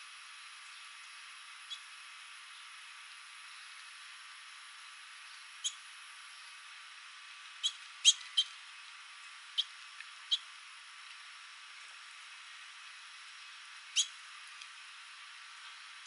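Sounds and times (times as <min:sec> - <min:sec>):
steady hiss: 0:00.0 - 0:16.0
finch chirps: 0:01.7 - 0:01.9, 0:05.6 - 0:05.8, 0:07.6 - 0:08.6, 0:09.6 - 0:10.5, 0:13.9 - 0:14.2.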